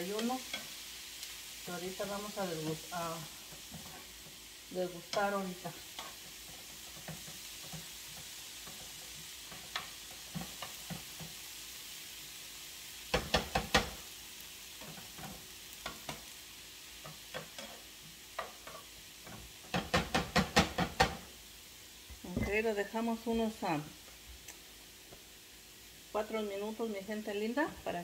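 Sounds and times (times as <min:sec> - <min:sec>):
vegetables sizzling in oil: 0:00.0 - 0:28.0
spoon scraping and knocking pan: 0:00.2 - 0:00.8, 0:02.0 - 0:11.6, 0:13.1 - 0:14.0, 0:14.8 - 0:21.4, 0:22.1 - 0:22.7.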